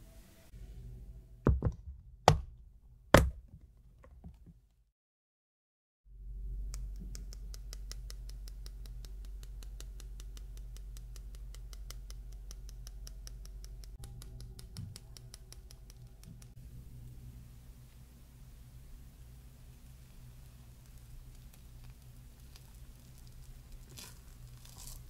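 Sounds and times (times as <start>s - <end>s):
patter of falling powder: 18.7s - 25.0s.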